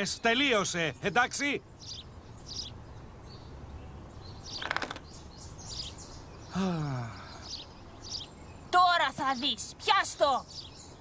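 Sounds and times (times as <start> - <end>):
bird trill: 0.0 - 11.0
birds chirping: 0.0 - 11.0
man sighing: 6.5 - 7.5.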